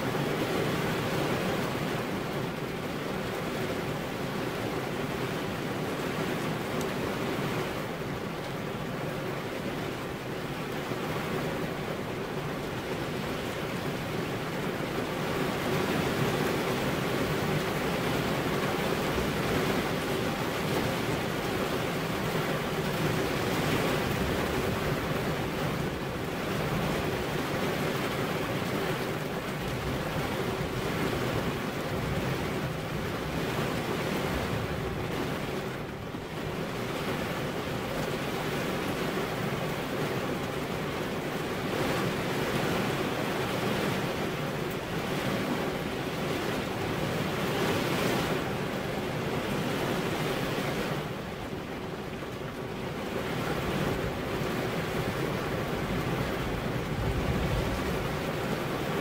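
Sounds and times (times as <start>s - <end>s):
heavy rain falling: 0.0s - 59.0s.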